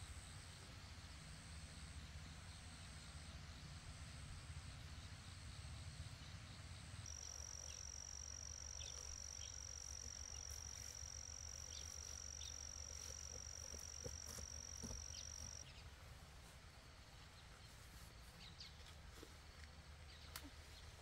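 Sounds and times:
high-pitched insect drone: 7.1s - 15.6s.

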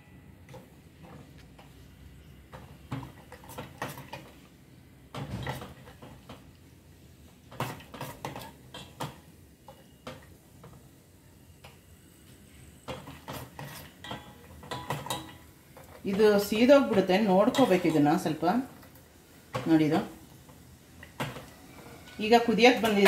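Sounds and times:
nuts frying in oil: 0.5s - 23.0s
ladle scraping a metal pan: 13.0s - 15.4s.

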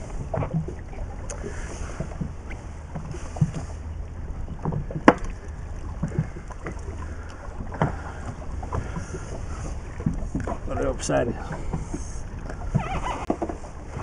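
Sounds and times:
knocks on boat: 4.6s - 5.4s.

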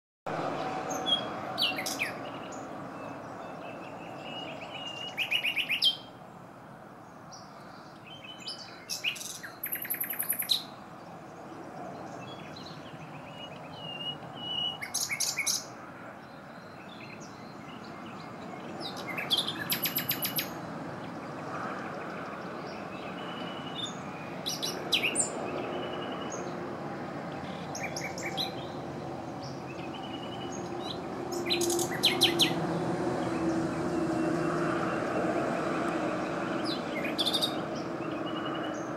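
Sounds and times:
nightingale singing: 0.9s - 6.2s, 7.4s - 11.2s, 12.0s - 20.6s, 22.6s - 26.6s, 27.3s - 28.8s, 29.4s - 32.6s, 36.6s - 38.9s.

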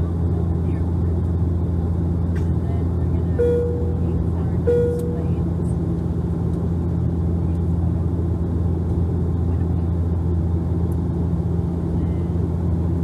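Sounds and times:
propeller and engine drone: 0.0s - 13.0s.

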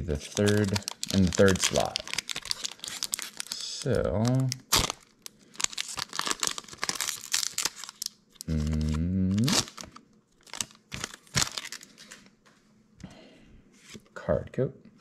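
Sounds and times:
foil wrapper crinkling and tearing: 0.0s - 12.3s
cards rustling and clicking: 0.1s - 4.5s.

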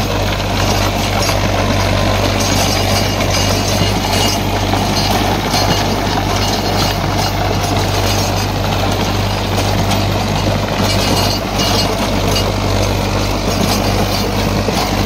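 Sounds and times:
tractor diesel engine humming: 0.0s - 15.0s.

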